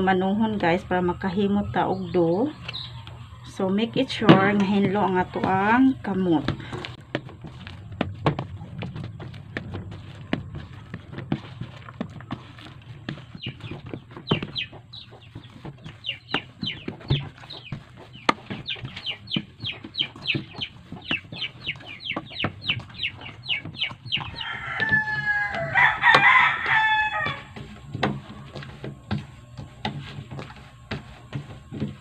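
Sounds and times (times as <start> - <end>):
chickens chirping: 0.2 - 29.7
rooster crowing: 24.3 - 27.6.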